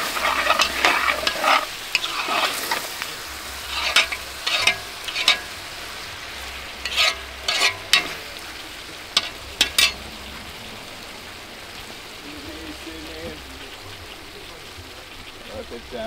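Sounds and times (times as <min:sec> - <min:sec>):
metal spoon scraping a pot: 0:00.0 - 0:05.6, 0:06.4 - 0:08.3, 0:09.2 - 0:10.0
stew sizzling: 0:00.0 - 0:16.0.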